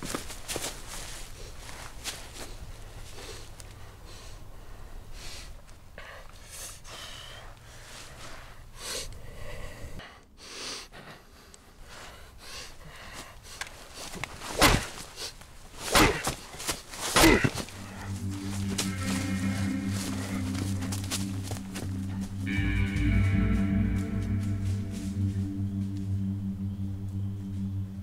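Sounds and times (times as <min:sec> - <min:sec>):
rustle of dry leaves: 0:00.0 - 0:03.6, 0:13.8 - 0:26.2
man breathing heavily and gasping: 0:03.0 - 0:14.2
crunches in leaves: 0:13.4 - 0:25.6.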